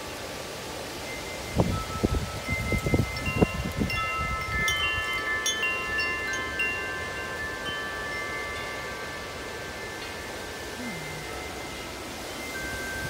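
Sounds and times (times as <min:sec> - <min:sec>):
tubular wind chime ringing: 0:01.0 - 0:13.0
wind buffeting microphone: 0:01.4 - 0:08.4.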